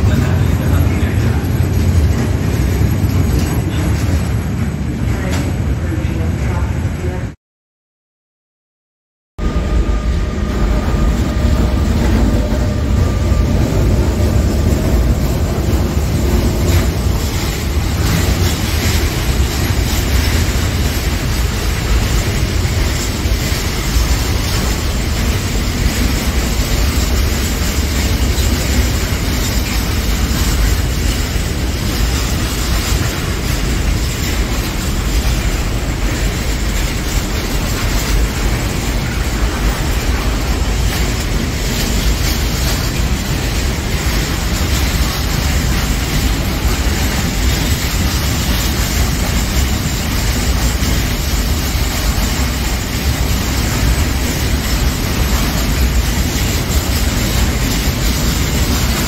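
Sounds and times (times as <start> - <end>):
freight train wheels rattling on rails: 0.0 - 7.4, 9.4 - 59.0.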